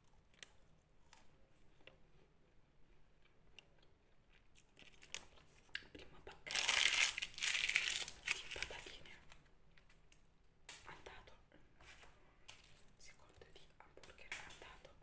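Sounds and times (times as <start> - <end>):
paper bag crumpling: 6.5 - 8.8.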